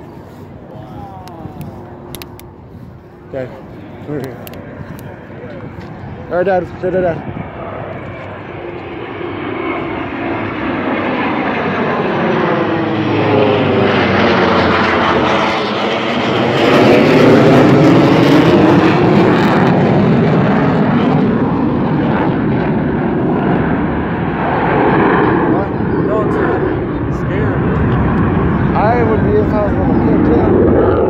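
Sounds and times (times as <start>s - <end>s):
jets flying overhead: 0.0s - 31.0s.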